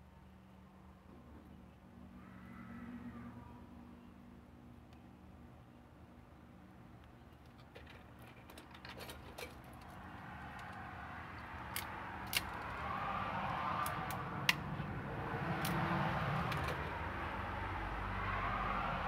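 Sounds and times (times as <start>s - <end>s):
crimp tool clicks and snips: 11.6s - 12.7s, 15.6s - 15.8s.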